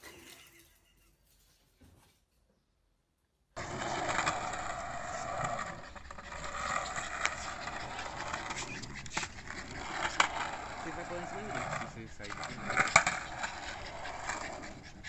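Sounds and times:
skateboard clacks: 3.6s - 15.0s
skateboard wheels rolling on concrete: 3.6s - 15.0s.

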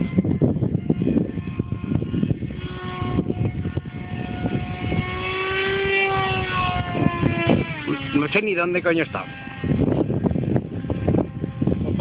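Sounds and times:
model jet electric motor whine: 0.0s - 12.0s
uneven low rumble: 0.0s - 12.0s.

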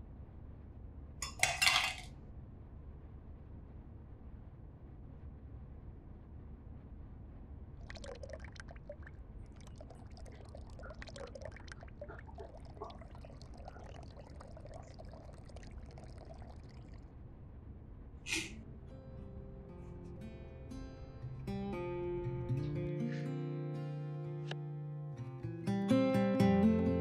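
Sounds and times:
water trickling through coffee filter: 7.8s - 17.0s.

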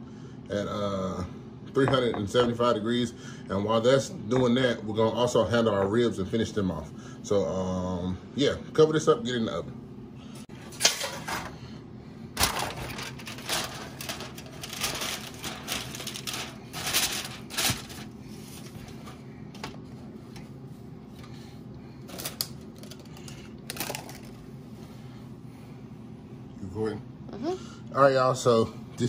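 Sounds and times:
steady low hum: 0.0s - 29.0s
aluminium foil crinkling: 12.4s - 18.9s, 22.1s - 24.4s.

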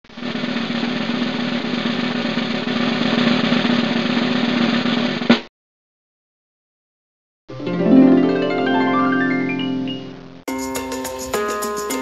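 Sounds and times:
snare drum roll: 0.1s - 5.5s.

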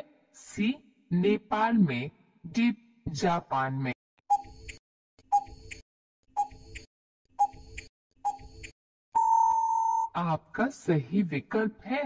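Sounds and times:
steady timer beep: 4.3s - 5.8s, 6.4s - 10.1s
clock-like ticking: 4.3s - 8.8s.

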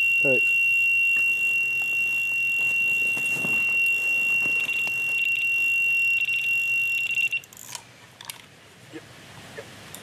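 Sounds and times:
bite alarm continuous tone: 0.0s - 7.5s.

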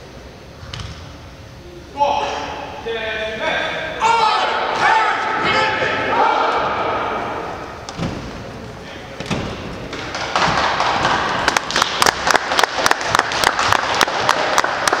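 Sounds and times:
person clapping sharply nearby: 10.1s - 15.0s
audience applauding: 10.2s - 15.0s.

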